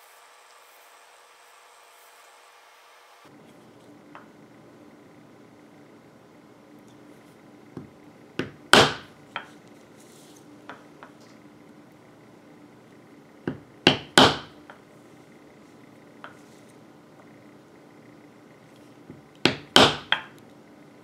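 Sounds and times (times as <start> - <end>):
mallet striking leather stamping tool: 8.4 - 9.1, 13.5 - 14.5, 19.4 - 20.2.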